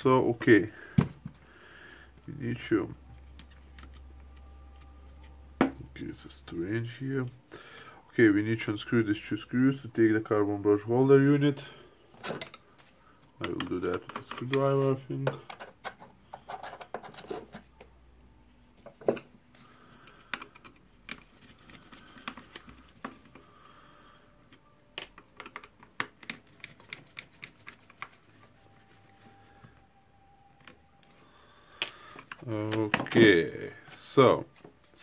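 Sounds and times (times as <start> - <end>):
handling plastic tool housing: 13.4 - 17.2.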